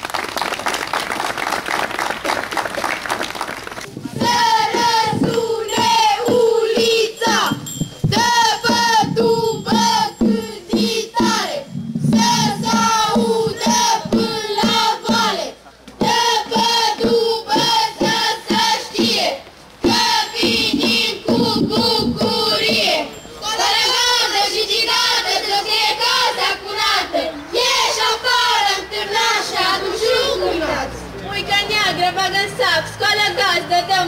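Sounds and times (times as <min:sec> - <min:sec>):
crowd applauding: 0:00.0 - 0:03.9
girls singing together: 0:04.0 - 0:31.0.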